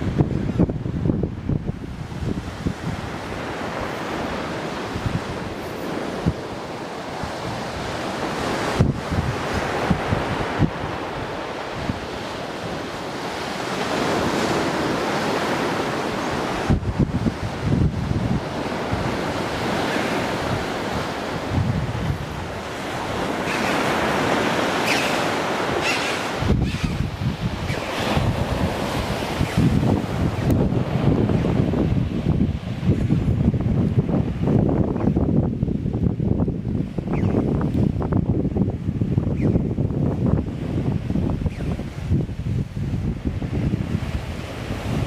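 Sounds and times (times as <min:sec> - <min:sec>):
sea surf breaking on rocks: 0:00.0 - 0:39.2, 0:39.8 - 0:45.0
wind buffeting microphone: 0:00.0 - 0:45.0
surf breaking on rocks: 0:13.3 - 0:34.8.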